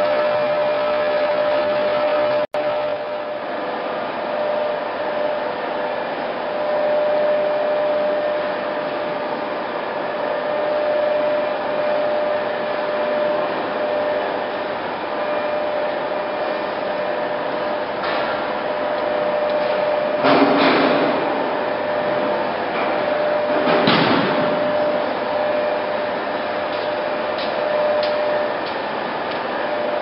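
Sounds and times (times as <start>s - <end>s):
lathe running with whine: 0.0s - 20.3s, 21.0s - 30.0s.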